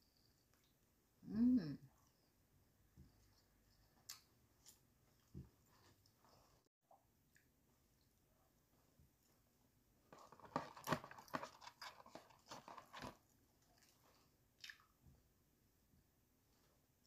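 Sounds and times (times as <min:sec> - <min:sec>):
crispy chicken crunching: 0:10.2 - 0:13.9.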